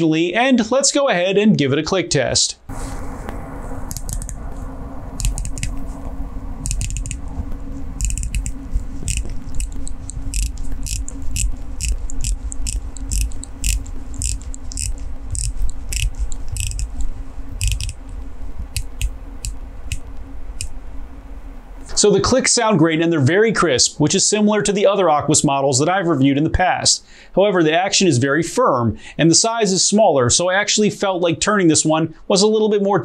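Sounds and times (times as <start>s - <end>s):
watch bezel ratcheting clicks: 5.2s - 5.7s, 6.6s - 7.2s, 8.0s - 18.1s, 18.7s - 20.0s.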